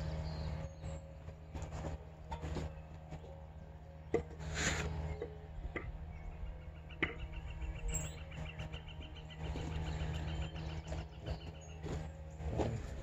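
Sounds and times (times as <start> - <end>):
low background rumble: 0.0 - 13.0
faint bird chirping: 5.1 - 13.0.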